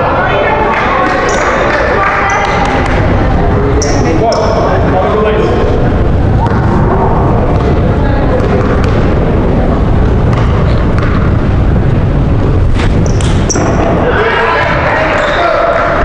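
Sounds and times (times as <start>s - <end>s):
voices chattering: 0.0s - 16.0s
loud steady low rumble: 2.7s - 15.2s
shoe squeaks on court: 3.8s - 4.6s, 12.9s - 13.8s.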